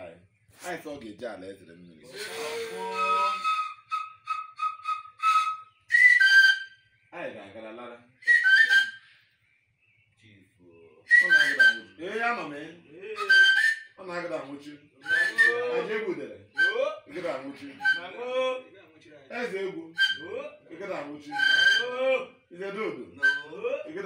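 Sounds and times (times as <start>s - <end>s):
man's voice: 0.6s - 3.2s, 14.2s - 24.0s
whistle notes: 2.1s - 6.9s, 8.2s - 9.1s, 11.1s - 12.0s, 13.2s - 14.0s, 15.0s - 15.9s, 16.6s - 16.9s, 17.8s - 18.1s, 20.0s - 20.5s, 21.2s - 22.0s, 23.2s - 23.8s.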